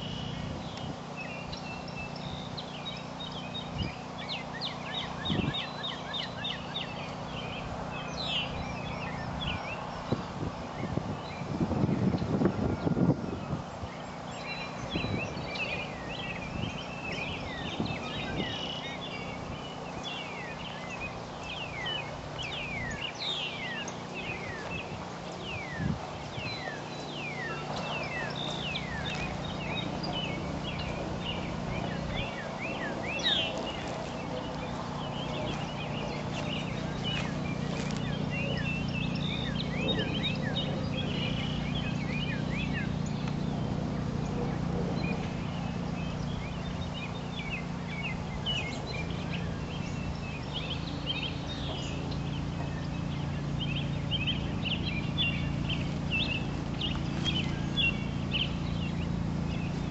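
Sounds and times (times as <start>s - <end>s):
low machinery hum: 0.0s - 59.9s
small birds chirping: 0.0s - 59.9s.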